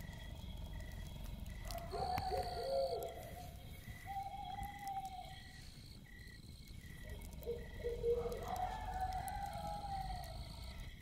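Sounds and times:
night insects chirping: 0.0 - 11.0
dog howling: 1.7 - 3.5, 7.5 - 10.4.

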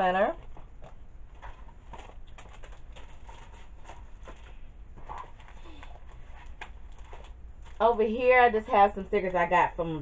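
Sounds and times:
low steady hum: 0.0 - 10.0
paper rustling and crinkling: 0.4 - 8.2.

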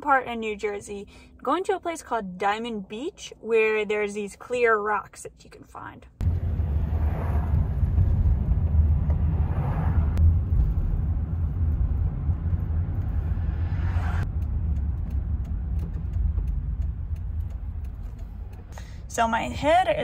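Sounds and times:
road rumble inside van: 6.0 - 20.0.

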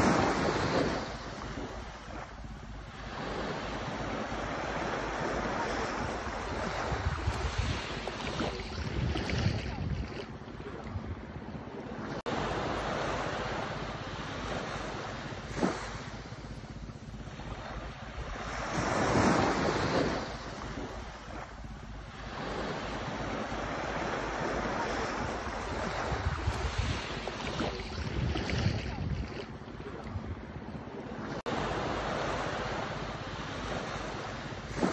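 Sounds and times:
small waves washing on sand: 0.0 - 34.9
wind rumble on microphone: 0.0 - 34.9.

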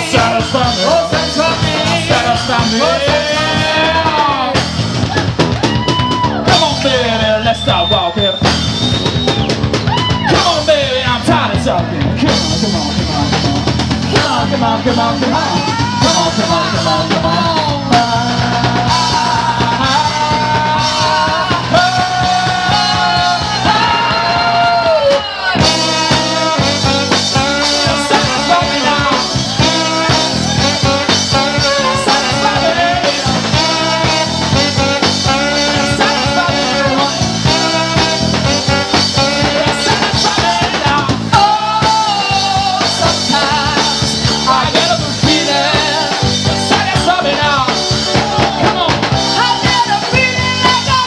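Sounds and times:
drums fast steady beat: 0.0 - 51.0
live rock band playing: 0.0 - 51.0.

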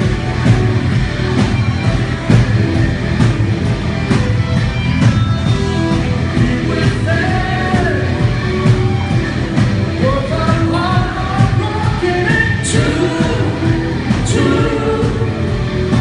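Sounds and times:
loud instrumental accompaniment: 0.0 - 16.0
man singing into microphone: 6.4 - 8.2, 10.0 - 15.5.

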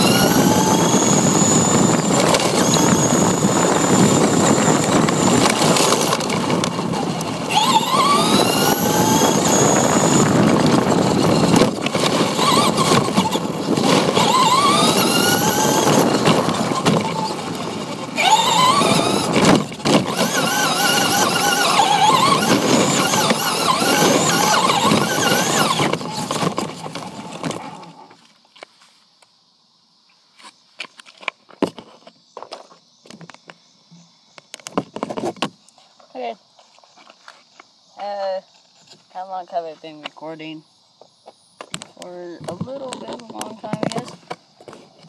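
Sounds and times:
toy car motor whining: 0.0 - 28.1
tyres rumbling on rough surface: 0.0 - 28.2.

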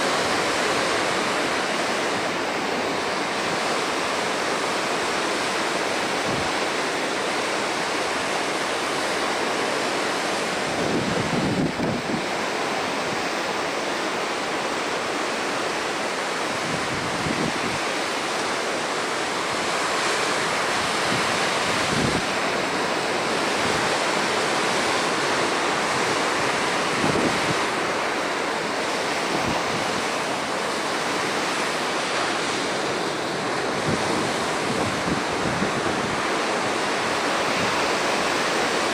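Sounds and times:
ocean surf washing on shore: 0.0 - 38.9
wind buffeting microphone: 10.4 - 13.4, 16.4 - 18.1, 19.3 - 38.9.

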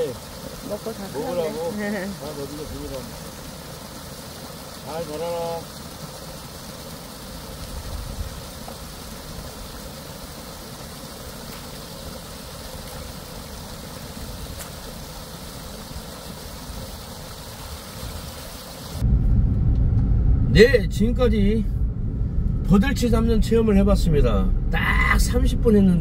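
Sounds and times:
water gushing from hose: 0.0 - 19.0.

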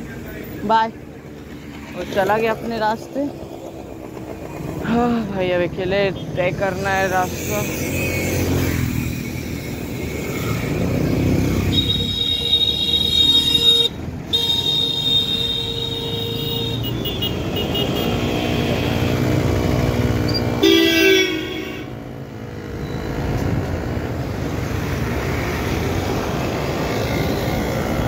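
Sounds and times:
traffic rumble: 0.0 - 28.0
vehicle horn long blast: 11.7 - 18.3, 20.6 - 22.0.

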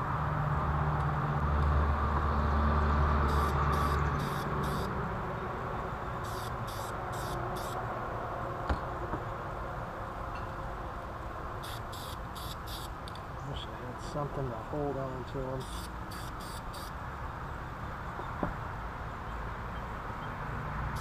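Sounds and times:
low mechanical hum: 0.0 - 21.0
spray can hissing: 3.3 - 4.9, 6.2 - 7.8, 11.6 - 12.9, 15.6 - 16.9.

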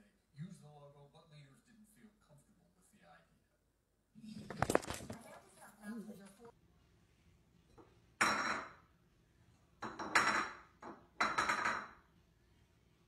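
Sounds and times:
food bowl clattering on tile: 7.7 - 8.9, 9.8 - 12.0.

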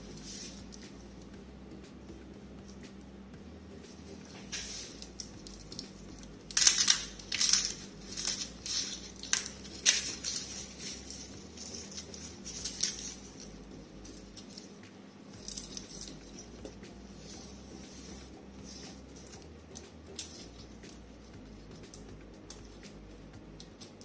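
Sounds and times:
garlic skins crackling: 4.3 - 16.6.

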